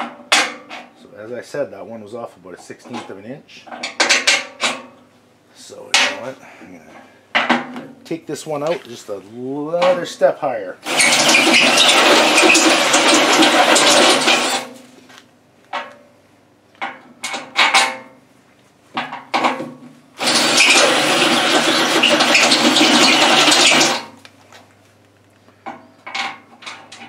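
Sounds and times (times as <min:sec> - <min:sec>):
drill cutting through steel: 0:10.8 - 0:14.6, 0:20.2 - 0:24.1.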